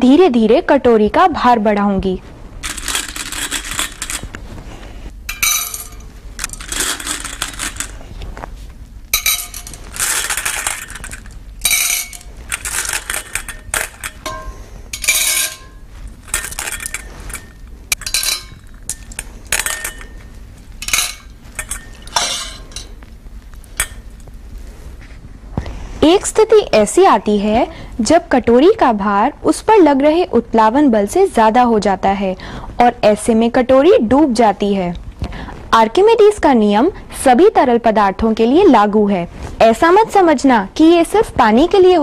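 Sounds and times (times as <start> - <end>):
objects clinking into bowl: 5.3 - 8.0, 9.2 - 23.0, 23.7 - 24.3.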